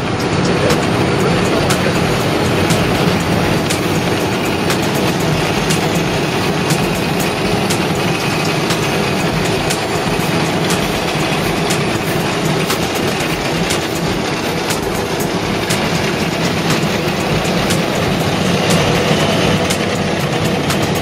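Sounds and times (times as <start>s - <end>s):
asphalt paver machinery running: 0.0s - 21.0s.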